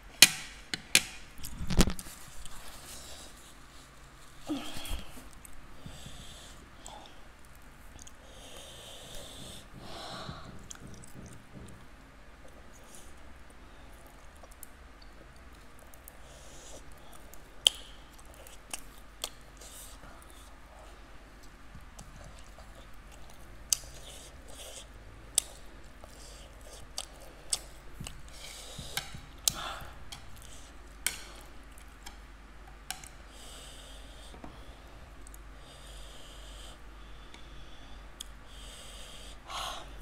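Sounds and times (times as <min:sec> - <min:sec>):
chewing with mouth smacks: 0:21.4 - 0:32.2.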